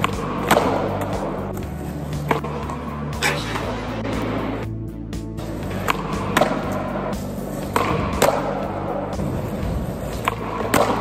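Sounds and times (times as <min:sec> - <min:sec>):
background music: 0:00.0 - 0:11.0
skateboard wheels rolling: 0:05.4 - 0:11.0.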